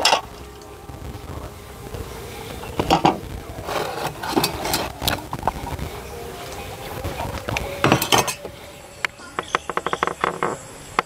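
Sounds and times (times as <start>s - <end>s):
objects knocking and clinking: 7.5s - 8.6s.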